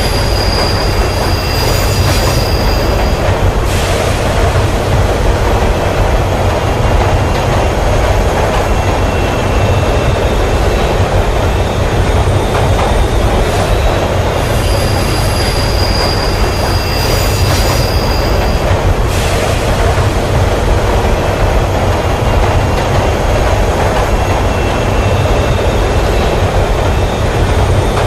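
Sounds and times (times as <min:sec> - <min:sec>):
faint high squeal: 0:00.0 - 0:03.1, 0:13.5 - 0:18.6
train wheels rumbling on track: 0:00.0 - 0:28.0.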